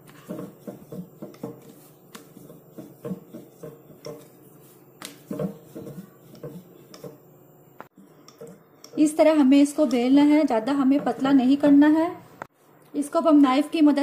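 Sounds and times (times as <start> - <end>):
rolling pin knocking on board: 0.2 - 4.3.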